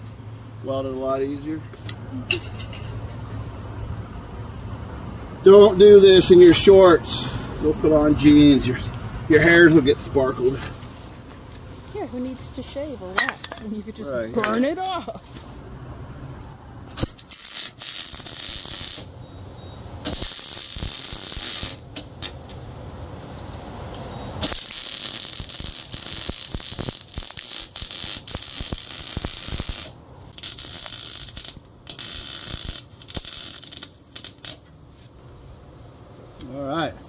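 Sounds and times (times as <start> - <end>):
arc welding crackling: 16.9 - 19.2, 20.0 - 22.6, 24.4 - 34.7.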